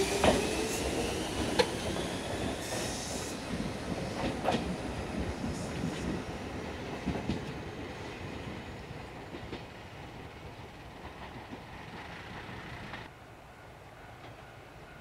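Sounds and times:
train wheels clacking on rails: 0.0s - 8.6s.

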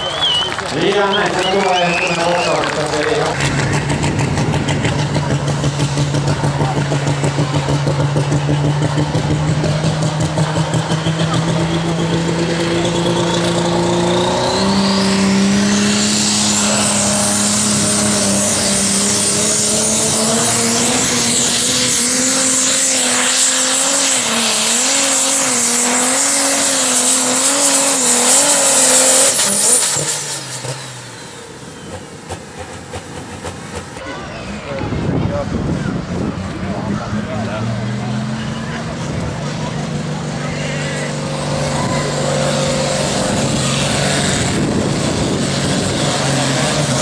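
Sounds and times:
tractor engine running hard: 0.0s - 47.0s.

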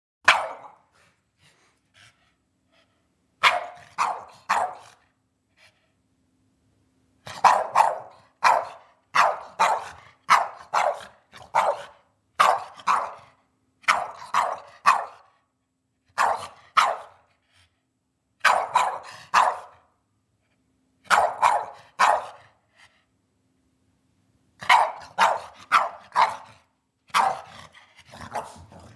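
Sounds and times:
dog barking: 0.2s - 0.9s, 3.4s - 5.0s, 7.3s - 15.4s, 16.1s - 17.3s, 18.4s - 19.9s, 21.1s - 22.6s, 24.6s - 28.7s.

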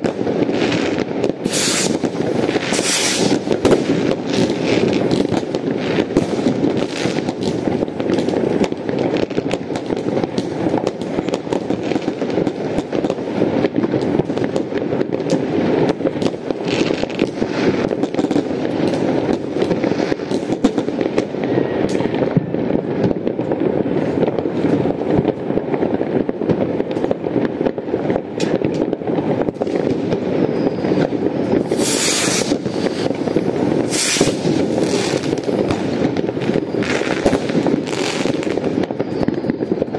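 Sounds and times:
sharp firecracker cracks: 0.0s - 21.2s, 28.4s - 30.2s, 31.0s - 39.2s
rumble of distant fireworks: 0.0s - 39.9s
hissing bursts: 1.4s - 2.0s, 2.6s - 3.4s, 31.6s - 35.8s.

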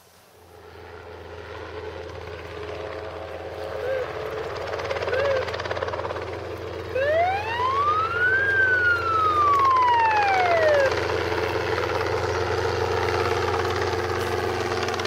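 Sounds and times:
helicopter flying low: 0.3s - 15.0s
siren-like tone sweeping: 6.8s - 12.0s.

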